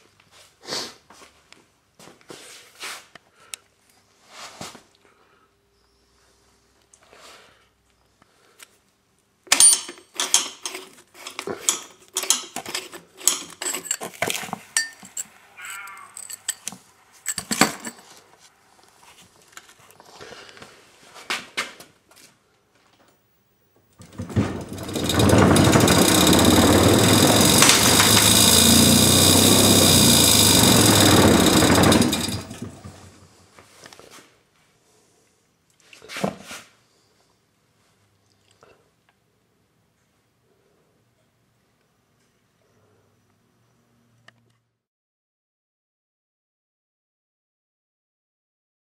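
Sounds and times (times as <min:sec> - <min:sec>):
sand mixer vibrator running: 0:24.0 - 0:33.4.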